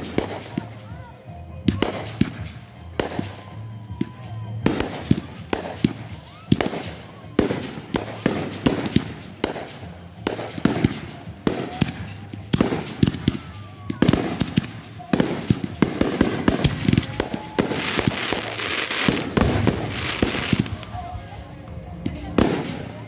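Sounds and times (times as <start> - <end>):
fireworks crackling: 0.0 - 23.0
firework fountain hissing: 4.6 - 21.6.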